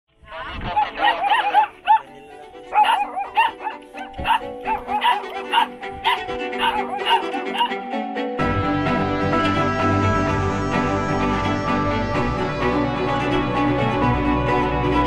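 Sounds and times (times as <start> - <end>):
background music: 0.2 - 15.0
puppy whimpering and yipping: 0.6 - 2.1, 2.7 - 7.8.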